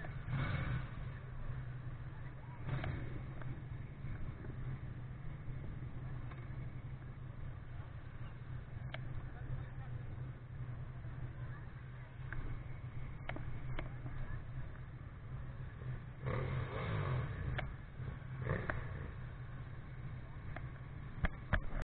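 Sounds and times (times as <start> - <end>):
motorcycle engines idling and revving: 0.0 - 21.8
sharp clicks and knocks: 20.5 - 21.8.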